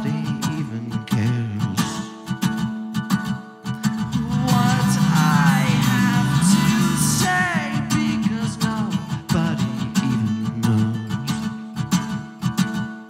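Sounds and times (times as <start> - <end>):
man singing: 0.0 - 2.3, 3.9 - 11.7
acoustic guitar strummed: 0.0 - 13.0.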